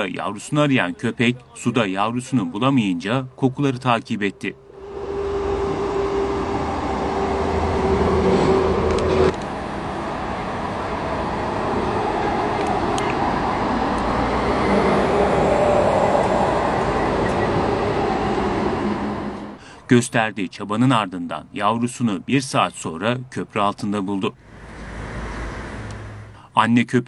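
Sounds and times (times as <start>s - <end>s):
road traffic noise: 0.0s - 26.6s
steady engine hum: 2.8s - 19.8s, 24.4s - 26.5s.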